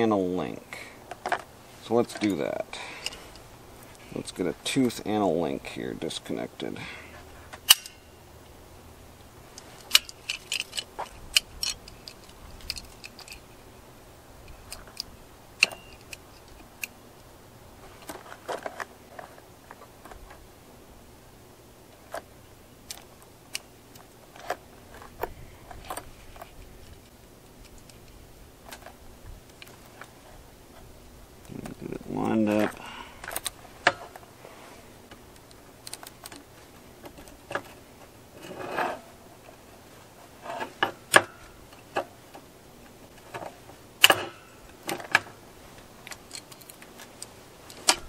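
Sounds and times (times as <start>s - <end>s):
metallic clicks of chain links: 9.8s - 13.5s.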